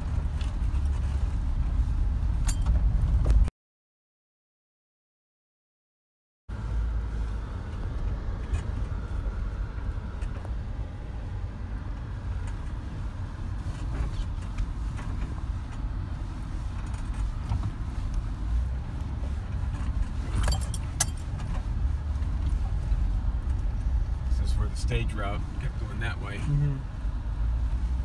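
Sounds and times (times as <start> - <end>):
engine and tyres rumbling: 0.0 - 3.5, 6.5 - 28.0
jangling metal rattles: 20.2 - 21.6.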